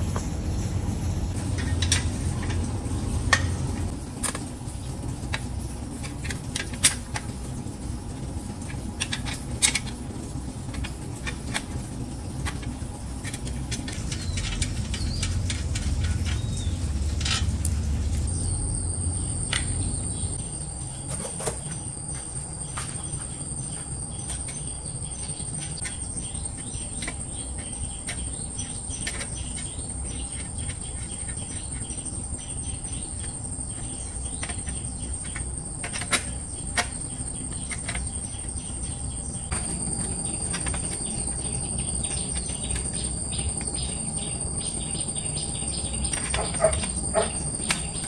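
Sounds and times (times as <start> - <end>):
insect chorus: 10.7 - 48.0.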